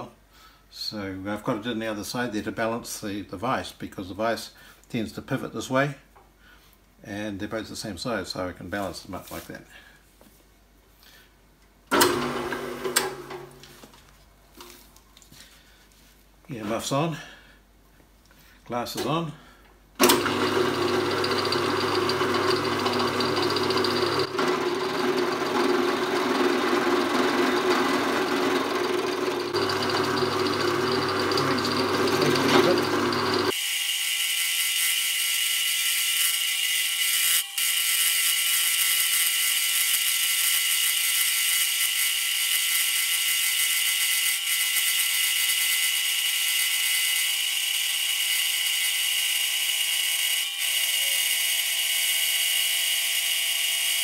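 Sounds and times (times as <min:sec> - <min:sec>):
drill milling metal: 0:20.0 - 0:54.0.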